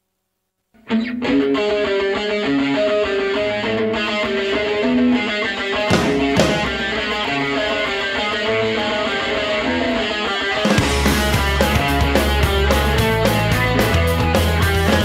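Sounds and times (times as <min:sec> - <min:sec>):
rock guitar single notes: 0:00.8 - 0:15.0
drum hits: 0:05.9 - 0:07.8, 0:10.8 - 0:15.0.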